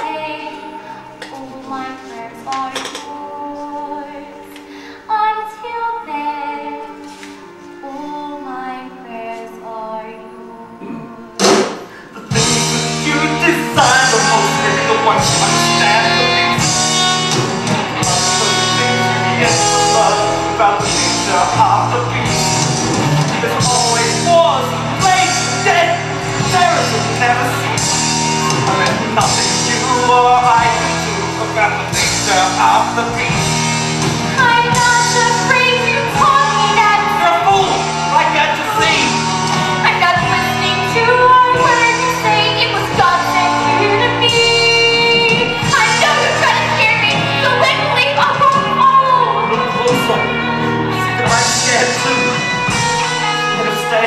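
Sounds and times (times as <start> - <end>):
woman singing: 0.0 - 11.4, 34.3 - 37.6, 39.8 - 50.2
instrumental rock band music: 11.3 - 54.0.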